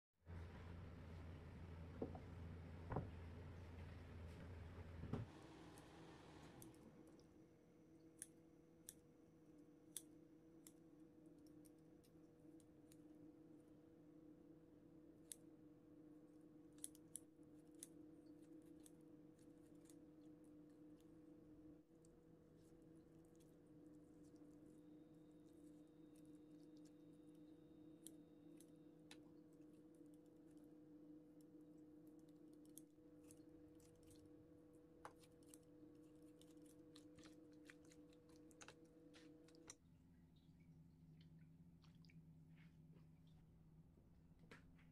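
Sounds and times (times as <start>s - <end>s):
steady low hum: 0.3s - 16.8s
low steady hum: 0.3s - 44.9s.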